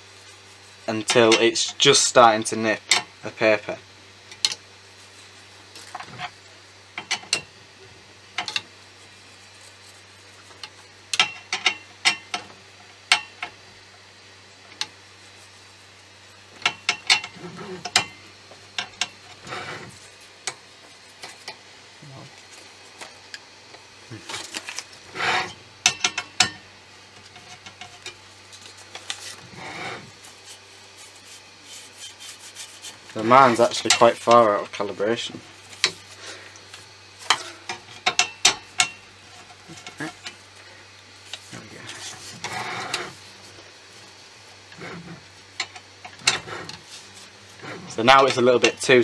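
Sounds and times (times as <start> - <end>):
paper rubbing and rustling: 9.0 - 10.6, 24.1 - 25.2, 28.4 - 34.3, 41.2 - 44.2.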